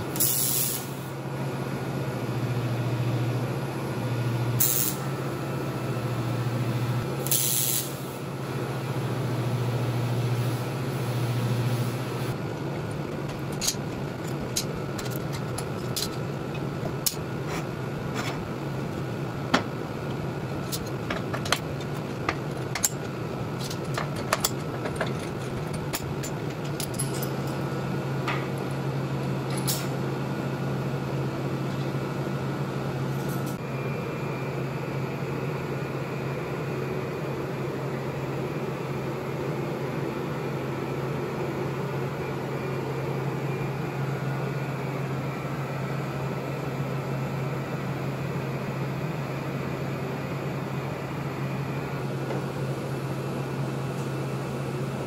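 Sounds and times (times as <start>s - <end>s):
fan humming: 1.1s - 7.4s, 8.0s - 35.2s.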